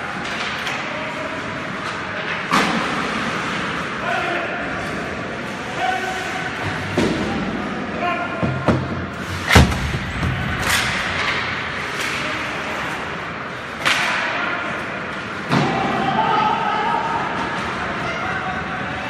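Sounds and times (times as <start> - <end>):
puck and sticks knocking boards: 8.4 - 12.2.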